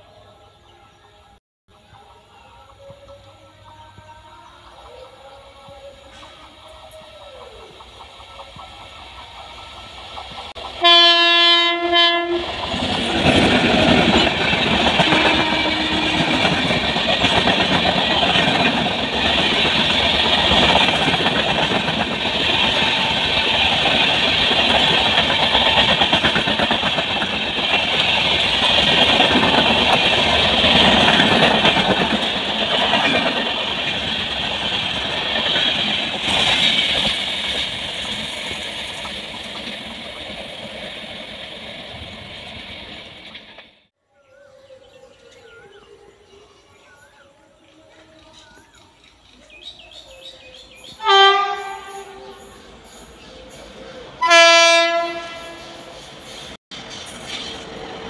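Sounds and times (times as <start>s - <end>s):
train wheels rushing on rails: 4.8s - 43.9s, 46.9s - 58.0s
train air horn: 10.8s - 12.6s, 15.0s - 16.6s, 51.0s - 52.6s, 54.2s - 56.0s.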